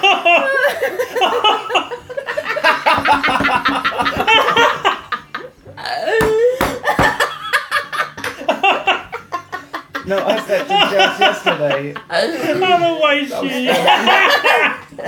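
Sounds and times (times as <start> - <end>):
person laughing helplessly: 0.0 - 14.9.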